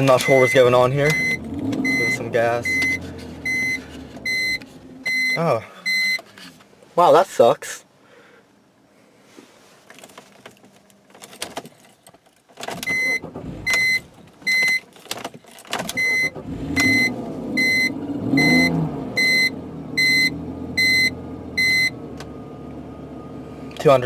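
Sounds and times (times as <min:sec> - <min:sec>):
car engine starting and idling: 0:00.0 - 0:06.2, 0:12.5 - 0:24.0
warning chime beeping: 0:00.1 - 0:06.2.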